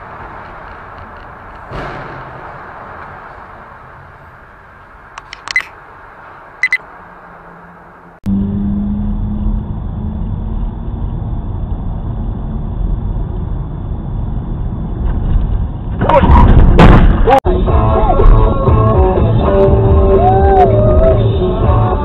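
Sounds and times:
car road and engine noise: 0:00.0 - 0:22.0
low hum: 0:06.4 - 0:22.0.

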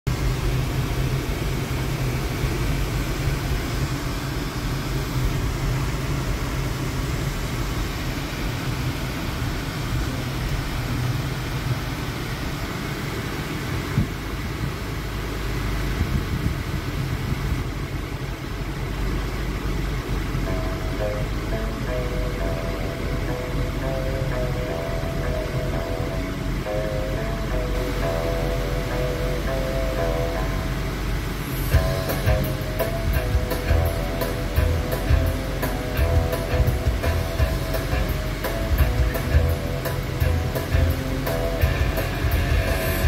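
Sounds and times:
car cabin road noise: 0:00.0 - 0:43.0.

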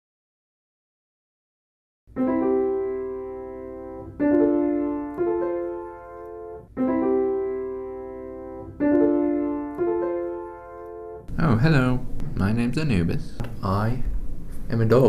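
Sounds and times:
slow piano chords: 0:02.1 - 0:12.9.

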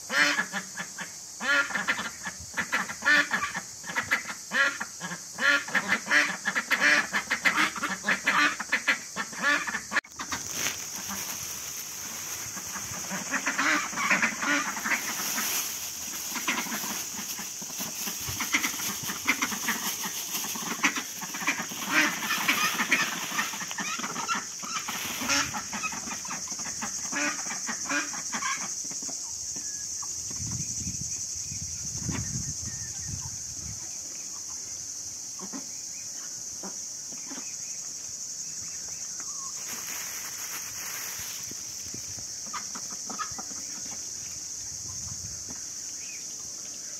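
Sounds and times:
steady high hiss: 0:00.0 - 0:46.9
ducks quacking: 0:00.1 - 0:28.8, 0:42.4 - 0:44.0.

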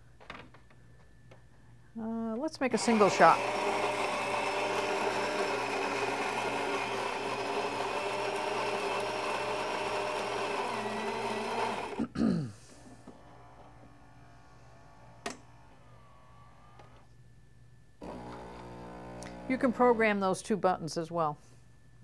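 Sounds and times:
coffee grinder grinding beans: 0:02.6 - 0:12.0, 0:18.0 - 0:20.0.

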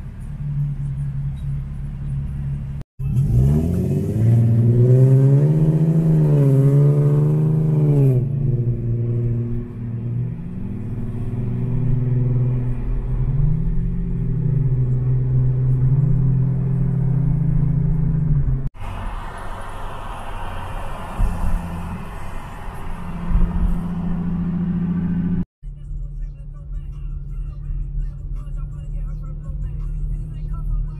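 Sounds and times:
car engine revving: 0:00.0 - 0:25.5.

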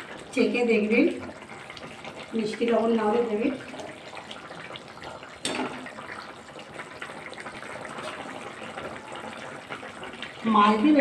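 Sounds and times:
broth boiling and bubbling: 0:00.0 - 0:11.0.

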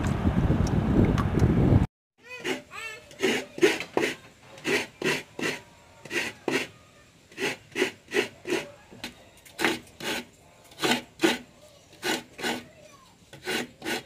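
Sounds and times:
rasping scrape strokes: 0:02.2 - 0:08.8, 0:09.5 - 0:14.0.

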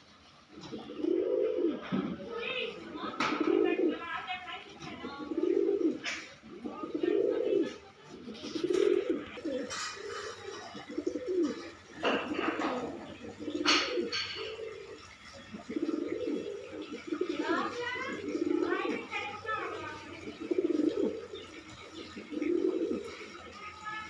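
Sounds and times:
pigeon cooing: 0:00.2 - 0:24.0.

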